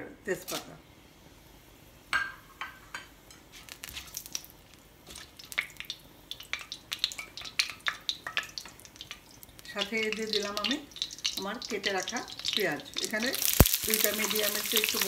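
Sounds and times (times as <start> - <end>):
spices crackling in hot oil: 0.4 - 15.0
spatula stirring: 6.3 - 15.0.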